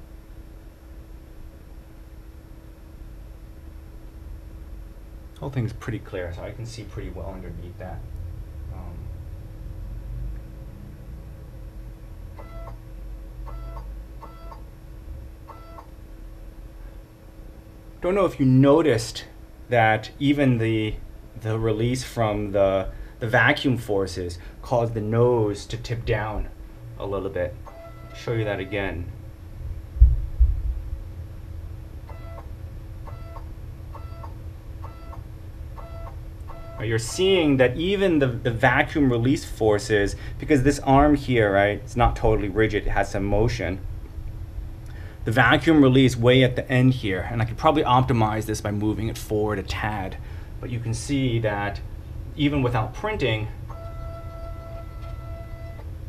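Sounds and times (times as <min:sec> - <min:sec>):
steady hum: 0:00.0 - 0:56.0
stepper motor whining: 0:53.7 - 0:55.9.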